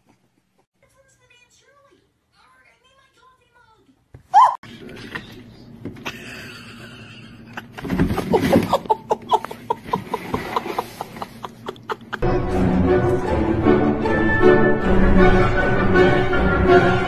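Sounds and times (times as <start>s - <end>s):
person laughing: 6.0s - 12.2s.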